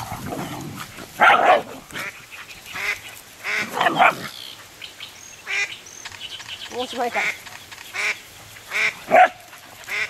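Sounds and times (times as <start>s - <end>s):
small dogs barking: 0.0s - 2.2s, 3.5s - 4.6s, 8.8s - 10.0s.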